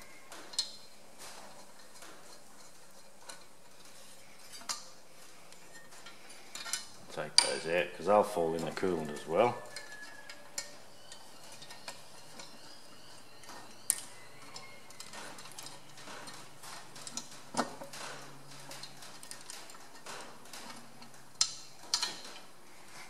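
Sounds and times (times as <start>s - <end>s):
light metal clicks and knocks: 14.6s - 22.5s.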